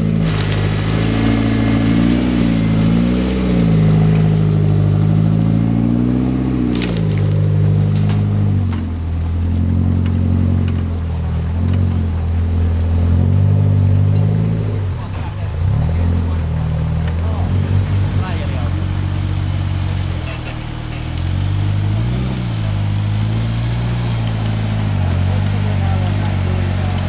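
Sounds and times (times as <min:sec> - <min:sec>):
sharp knocks and crunches: 0:00.0 - 0:05.5, 0:06.3 - 0:09.0
off-road vehicle engine revving: 0:00.0 - 0:27.0.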